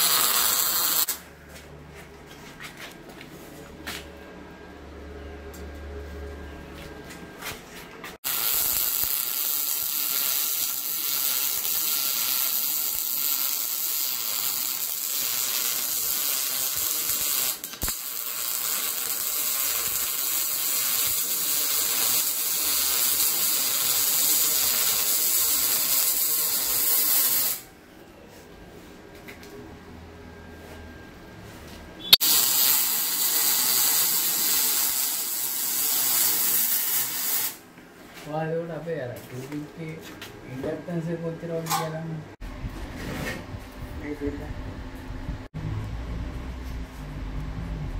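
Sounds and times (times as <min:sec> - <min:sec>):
welding arc hissing: 0:00.0 - 0:01.2, 0:08.2 - 0:27.7, 0:32.1 - 0:37.6.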